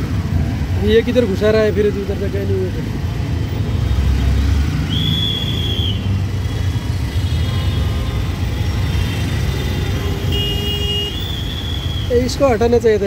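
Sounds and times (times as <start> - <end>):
auto-rickshaw engine rumbling: 0.0 - 13.0
high horn beep: 10.2 - 11.3.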